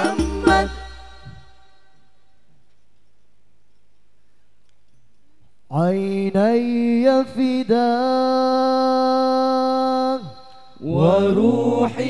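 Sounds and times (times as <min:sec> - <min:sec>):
male vocal group singing a cappella: 0:00.0 - 0:01.4, 0:05.7 - 0:12.0.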